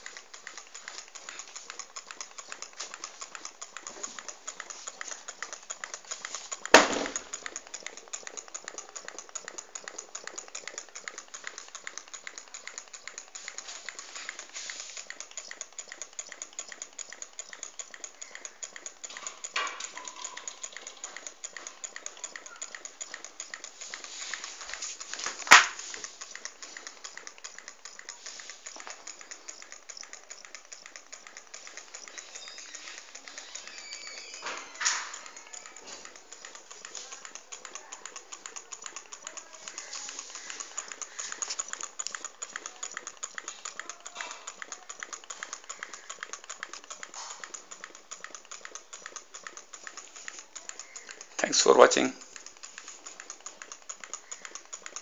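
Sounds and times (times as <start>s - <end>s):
engine mechanism ticking: 0.0s - 55.0s
sharp knocks: 6.7s - 7.2s.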